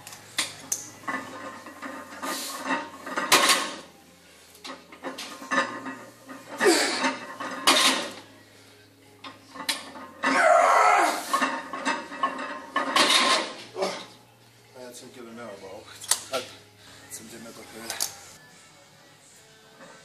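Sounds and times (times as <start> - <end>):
barbell plates clanking: 11.2 - 14.0.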